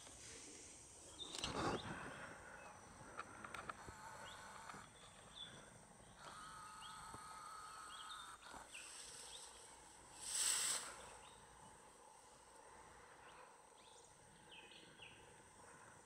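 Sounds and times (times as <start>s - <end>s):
loud hiss: 10.1s - 11.3s.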